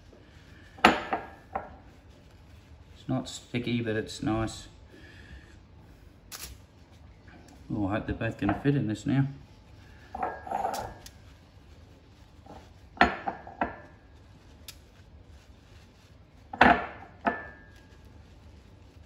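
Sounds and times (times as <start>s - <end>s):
soft handling rustle: 0.0s - 19.0s
brush clinking ceramic mug: 8.4s - 8.8s, 10.1s - 11.2s, 12.9s - 14.0s, 16.5s - 17.9s.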